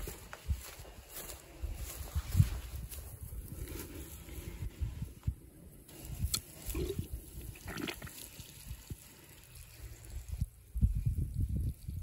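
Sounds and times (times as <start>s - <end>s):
water trickling from hose connector: 5.9s - 12.0s.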